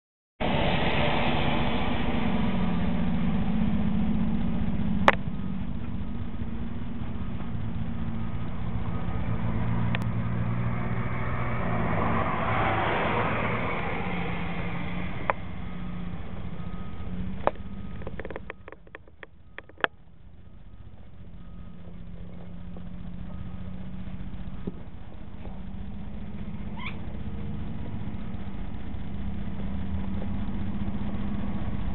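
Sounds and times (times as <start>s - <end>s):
engine idling: 2.3s - 9.2s, 15.2s - 31.9s.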